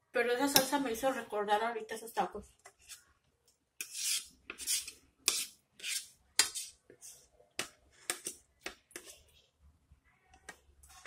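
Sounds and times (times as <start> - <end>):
knife and fork scraping plate: 3.8 - 6.8.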